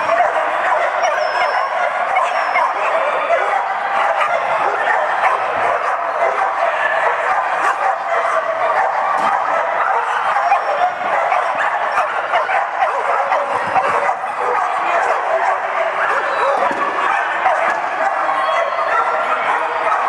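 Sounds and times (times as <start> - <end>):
dogs barking and yipping: 0.0 - 20.0
steady din of noise: 10.9 - 20.0.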